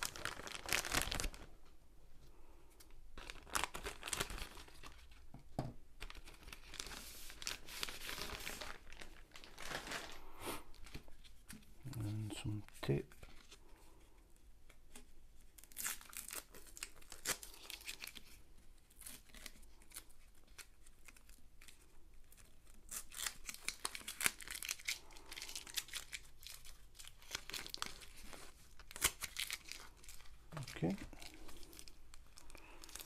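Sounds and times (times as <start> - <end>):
tape being peeled: 0.0 - 1.5, 2.8 - 5.2, 14.6 - 33.0
paper crinkling: 0.0 - 1.6, 2.8 - 5.2, 6.0 - 13.7, 14.9 - 33.0.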